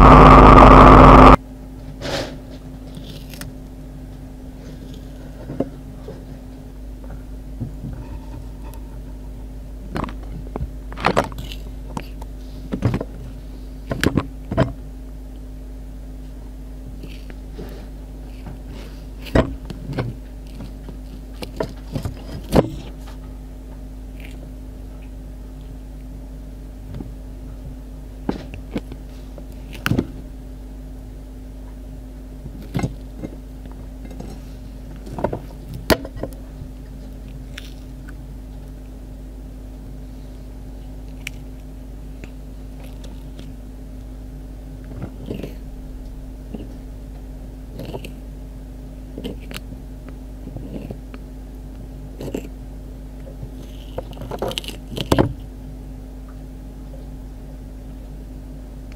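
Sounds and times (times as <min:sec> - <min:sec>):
steady low hum: 0:00.0 - 0:58.9
tortoise crunching cucumber: 0:02.8 - 0:03.6, 0:10.0 - 0:12.3, 0:16.9 - 0:23.3, 0:24.1 - 0:24.6, 0:28.4 - 0:30.2, 0:32.5 - 0:39.0, 0:40.1 - 0:44.2, 0:44.8 - 0:46.9, 0:47.7 - 0:48.2, 0:49.1 - 0:51.3, 0:52.0 - 0:52.6, 0:53.2 - 0:55.5.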